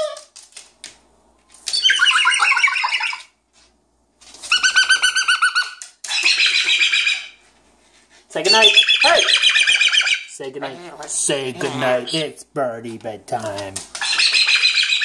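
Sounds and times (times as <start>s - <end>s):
cockatoo chattering: 10.6s - 12.3s.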